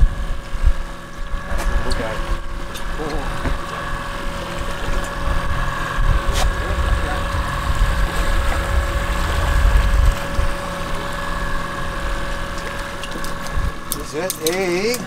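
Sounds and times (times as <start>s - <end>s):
boat engine humming: 0.0s - 15.0s
wind rumbling on microphone: 3.3s - 13.9s.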